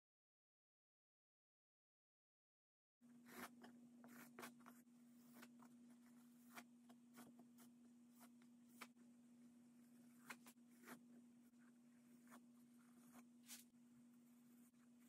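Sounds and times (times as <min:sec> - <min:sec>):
low hum: 0:03.0 - 0:15.0
palette knife scraping canvas: 0:03.2 - 0:09.0, 0:09.9 - 0:15.0.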